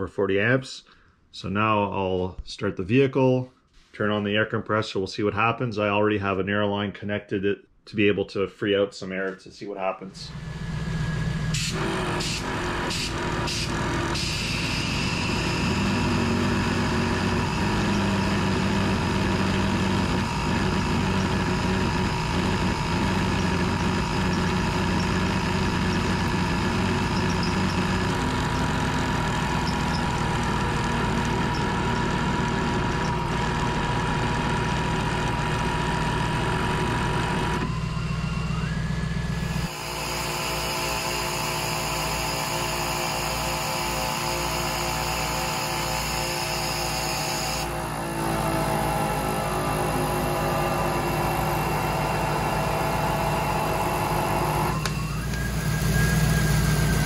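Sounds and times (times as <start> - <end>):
vehicle engine idling: 10.2 - 39.8, 47.7 - 57.0.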